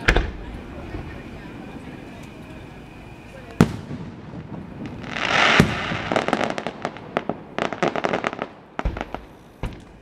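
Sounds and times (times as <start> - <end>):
firework loud bang: 0.0 - 1.2, 3.6 - 10.0
firework hissing rush: 0.0 - 9.8.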